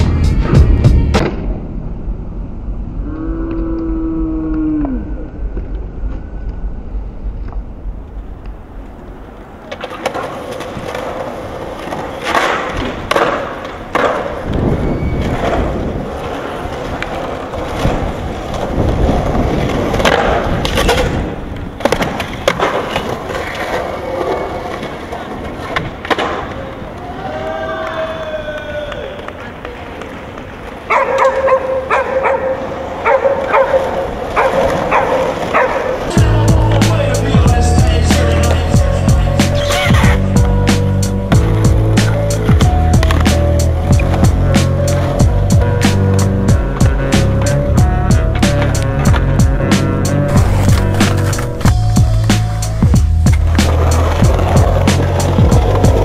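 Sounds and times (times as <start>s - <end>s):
skateboard wheels rolling on concrete: 0.0s - 56.0s
skateboard tail snaps and clacks: 9.6s - 14.7s, 19.5s - 27.1s
skateboard grinding on ledge: 9.7s - 26.6s, 33.8s - 56.0s.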